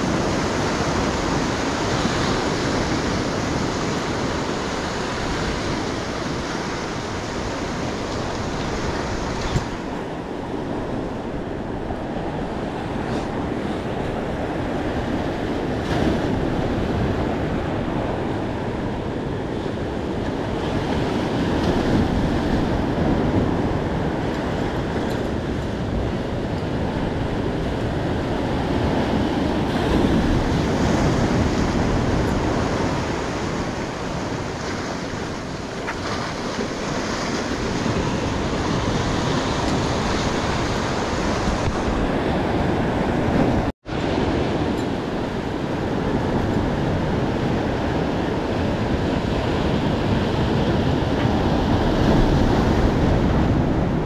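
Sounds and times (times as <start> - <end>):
surf breaking on rocky shore: 0.0 - 54.0
wind buffeting microphone: 0.0 - 54.0.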